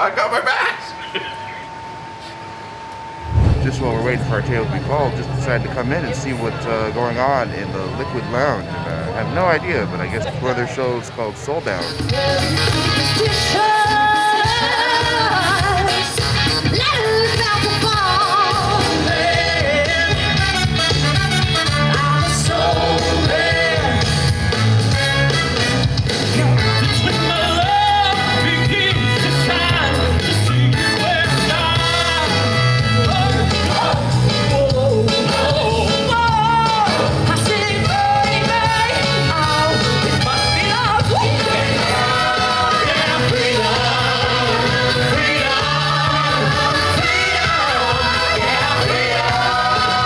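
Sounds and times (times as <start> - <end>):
soul music with bass line: 11.8 - 50.0
singers' voices: 26.6 - 50.0.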